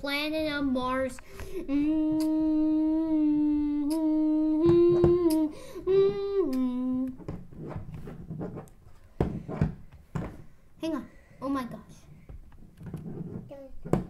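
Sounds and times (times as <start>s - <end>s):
child humming a tune: 1.5s - 7.4s.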